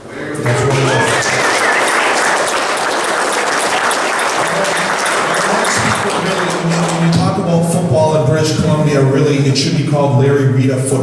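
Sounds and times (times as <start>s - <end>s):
audience applauding: 0.4s - 7.6s.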